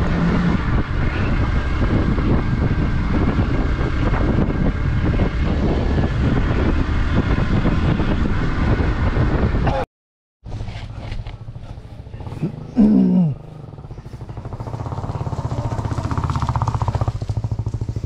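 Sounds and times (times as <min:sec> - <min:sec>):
motorcycle engine running: 0:00.0 - 0:09.6, 0:10.5 - 0:18.0
wind rush on microphone: 0:00.0 - 0:09.8.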